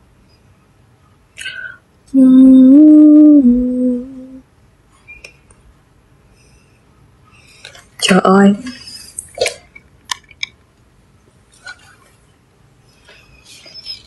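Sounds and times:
woman humming: 2.1s - 4.4s.

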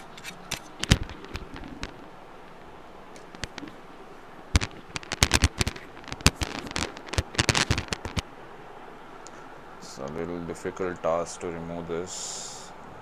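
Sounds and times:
laptop chassis clicks and clacks: 0.0s - 2.0s, 3.2s - 3.8s, 4.5s - 8.2s.

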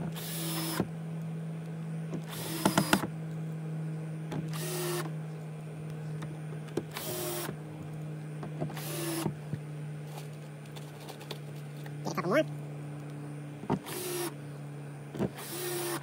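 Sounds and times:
steady low hum: 0.0s - 16.0s
cordless drill driving screws: 2.2s - 3.1s, 4.5s - 5.1s, 6.9s - 7.6s, 8.8s - 9.3s, 13.8s - 14.3s, 15.4s - 16.0s.

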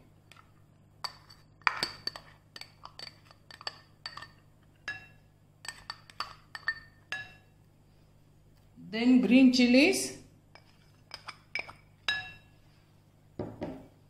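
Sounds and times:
glass bowls clinking: 1.0s - 7.5s, 11.1s - 12.5s.

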